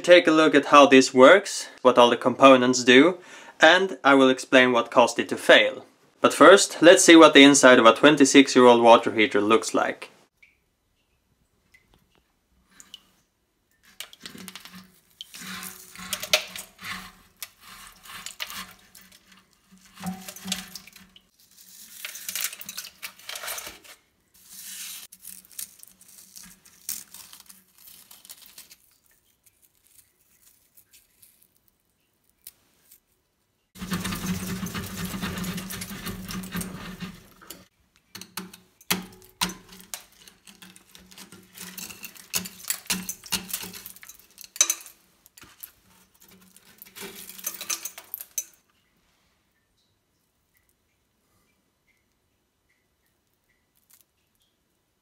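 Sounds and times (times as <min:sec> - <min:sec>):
limescale scraped off metal: 0:13.8 - 0:28.2, 0:33.8 - 0:48.6
brittle flakes crunching and clattering: 0:13.8 - 0:33.1, 0:33.8 - 0:37.7, 0:38.9 - 0:48.5.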